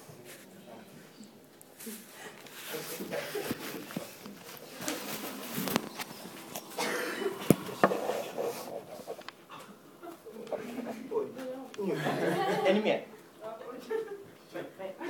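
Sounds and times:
rustling and shuffling: 0.0s - 11.8s.

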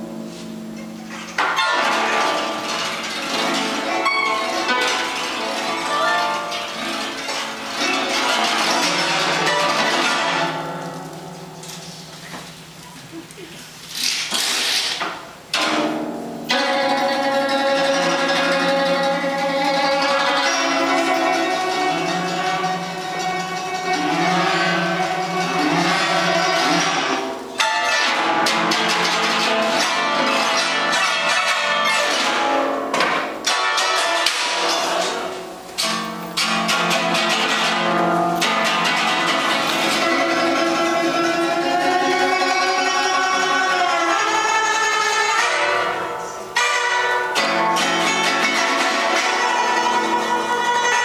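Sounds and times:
rapid sharp struck notes: 0.0s - 12.8s, 15.5s - 51.0s
plucked zither playing: 0.0s - 14.2s, 15.4s - 51.0s.

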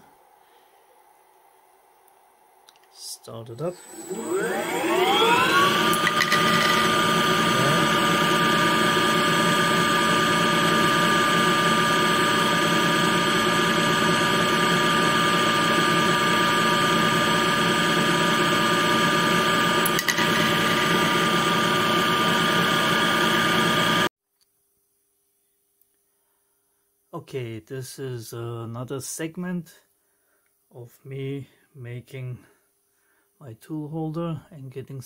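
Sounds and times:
lathe spindle whine: 3.6s - 24.1s.

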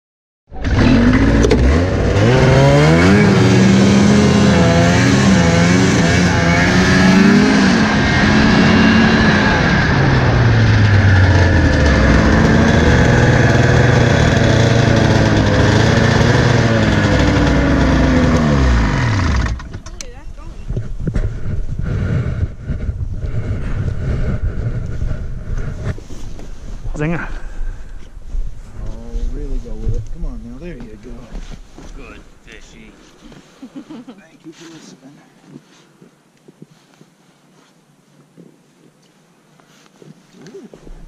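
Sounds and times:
snowmobile engine revving: 0.6s - 26.0s, 28.7s - 33.2s.

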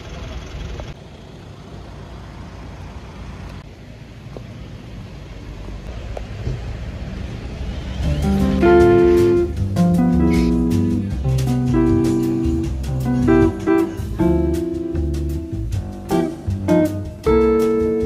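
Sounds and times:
road traffic rumble: 0.0s - 18.0s
acoustic guitar music: 8.0s - 18.0s.

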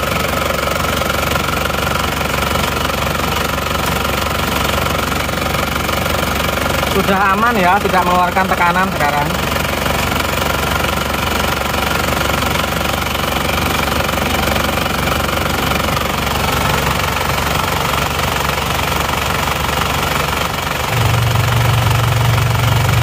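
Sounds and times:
diesel engine idling: 0.0s - 23.0s
low hum: 20.9s - 23.0s.

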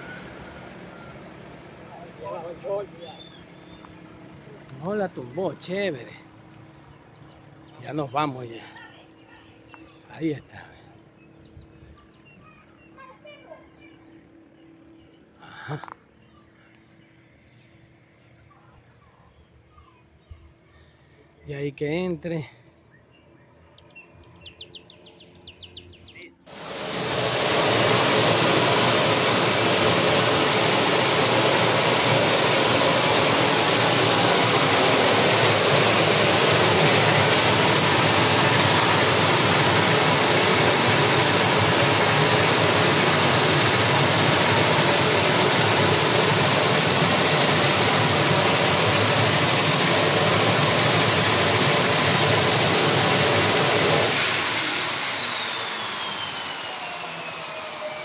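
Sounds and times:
high turbine whine: 0.0s - 8.7s, 26.5s - 58.0s
turboprop engine running: 0.0s - 10.0s, 25.2s - 58.0s
propeller noise: 0.0s - 13.8s, 25.3s - 58.0s.

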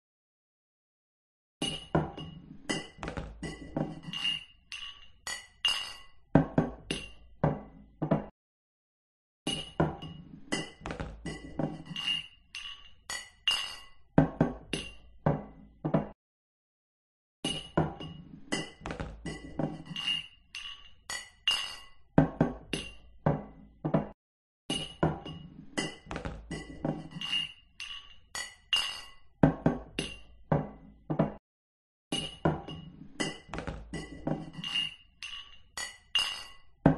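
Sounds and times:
glasses clinking: 1.6s - 6.2s, 9.5s - 14.0s, 17.5s - 22.0s, 24.7s - 29.2s, 32.2s - 36.7s.

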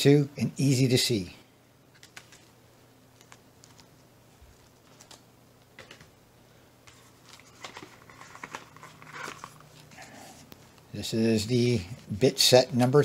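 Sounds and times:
cardboard rubbing and rustling: 6.9s - 10.2s.

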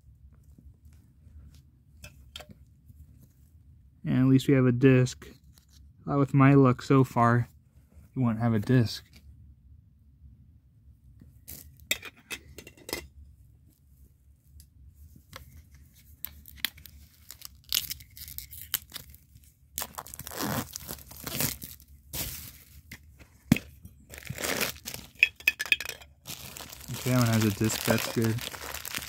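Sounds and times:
plastic bag crinkling and tearing: 16.4s - 22.8s, 24.1s - 25.3s, 26.2s - 29.0s.

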